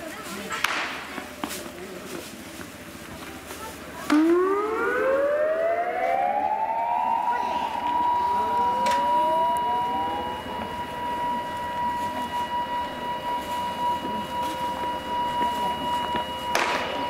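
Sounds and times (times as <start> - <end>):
second siren tone rising: 4.0 - 17.0
siren steady tone: 4.0 - 17.0.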